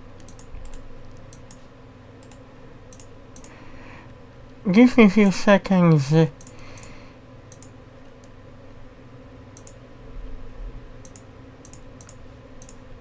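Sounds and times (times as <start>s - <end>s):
faint hum: 0.0s - 13.0s
computer mouse clicking: 0.2s - 3.6s, 6.4s - 8.4s, 9.6s - 9.8s, 11.0s - 12.8s.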